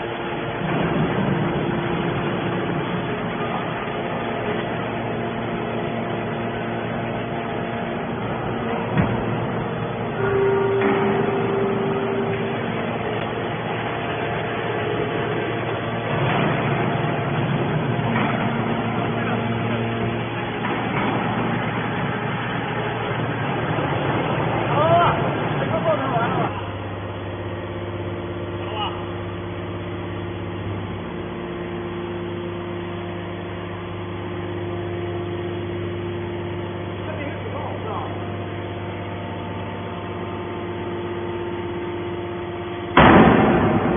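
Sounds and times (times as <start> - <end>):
hydraulic baler humming: 0.0 - 43.9.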